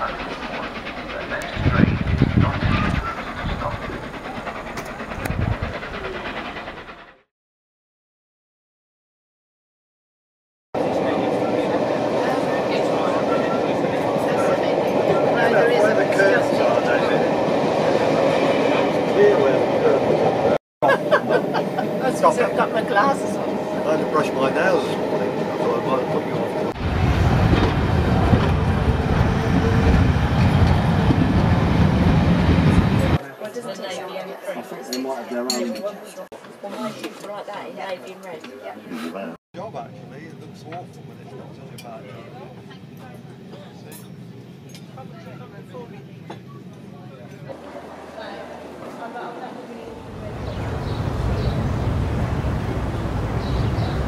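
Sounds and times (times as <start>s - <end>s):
train rumble and wheel clatter: 0.0s - 7.3s, 10.8s - 33.2s, 39.7s - 54.0s
crowd voices: 10.8s - 27.6s, 39.9s - 51.5s.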